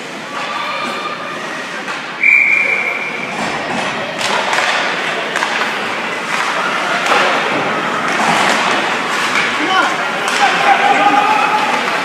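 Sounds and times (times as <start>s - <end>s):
hockey sticks and puck knocking: 3.4s - 12.0s.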